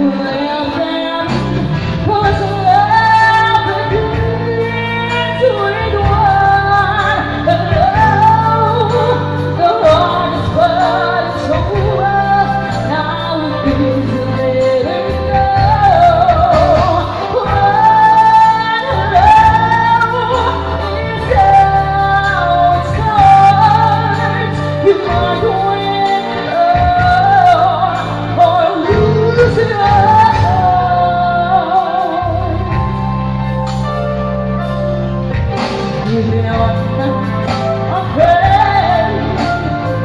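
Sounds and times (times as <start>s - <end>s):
woman singing slow song: 0.0s - 34.7s, 35.5s - 40.0s
instrumental accompaniment: 0.0s - 40.0s.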